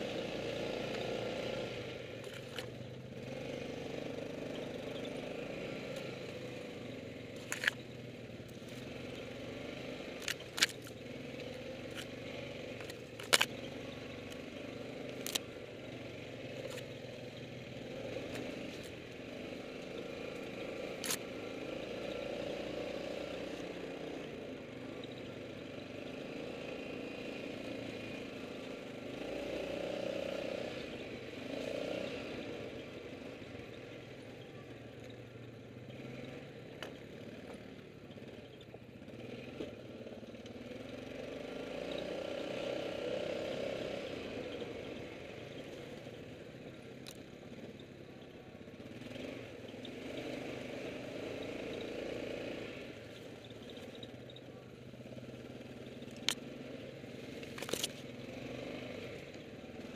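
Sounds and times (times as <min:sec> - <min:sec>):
quad engine running: 0:00.0 - 0:59.9.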